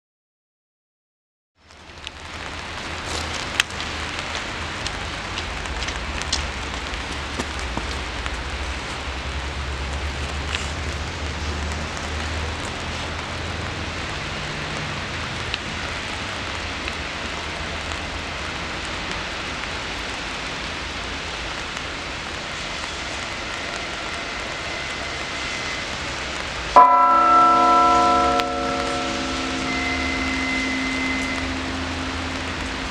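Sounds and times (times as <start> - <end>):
railway yard hiss: 17.1 - 32.9
train horn: 22.8 - 32.9
low rumble: 23.9 - 32.9.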